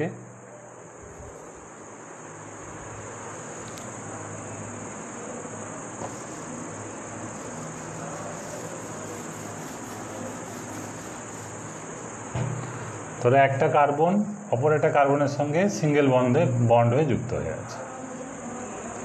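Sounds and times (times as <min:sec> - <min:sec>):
crickets chirping: 0:00.0 - 0:19.0.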